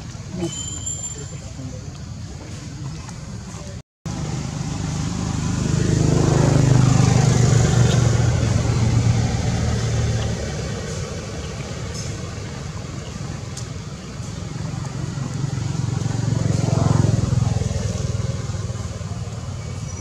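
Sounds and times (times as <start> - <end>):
vehicle engine passing by: 4.1 - 20.0.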